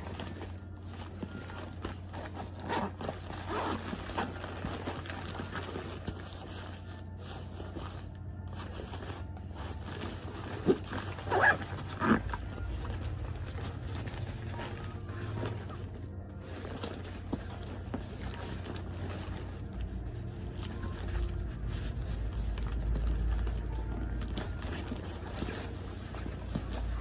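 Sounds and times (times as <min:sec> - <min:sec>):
nylon fabric rustling: 0:00.0 - 0:27.0
zipper pulled open and shut: 0:02.2 - 0:06.1, 0:10.1 - 0:12.7.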